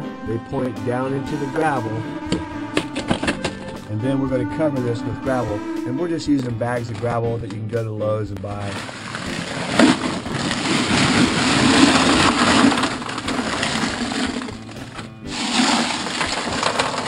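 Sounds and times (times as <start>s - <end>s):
gravel pouring rattle: 8.6s - 17.0s.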